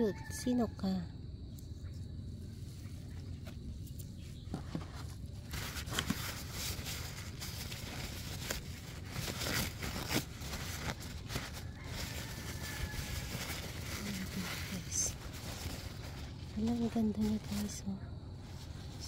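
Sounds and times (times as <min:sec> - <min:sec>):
paper crinkling and rustling: 0:03.1 - 0:17.8.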